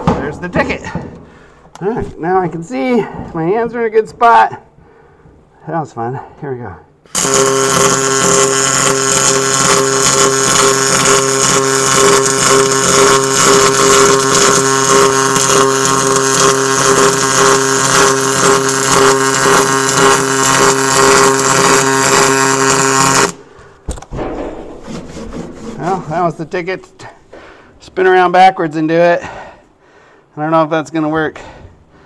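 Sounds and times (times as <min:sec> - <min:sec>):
welder buzzing hiss and hum: 0:07.1 - 0:23.5.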